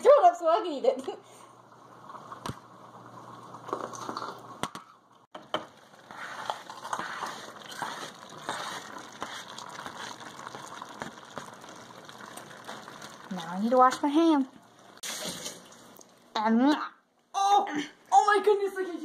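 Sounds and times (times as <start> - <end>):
meat sizzling in a pan: 5.8 - 13.7.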